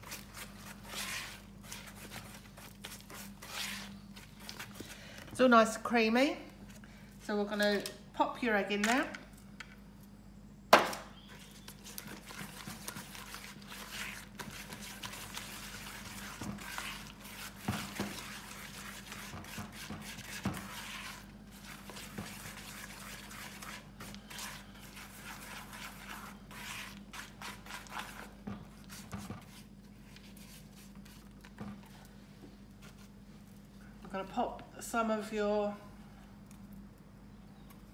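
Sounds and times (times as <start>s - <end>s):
dough squishing and scraping: 0.0s - 5.9s, 11.2s - 34.2s.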